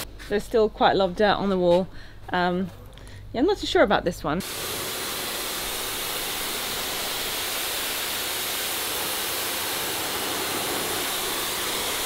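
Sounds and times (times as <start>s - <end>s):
pressure washer spraying wall: 4.4s - 12.0s.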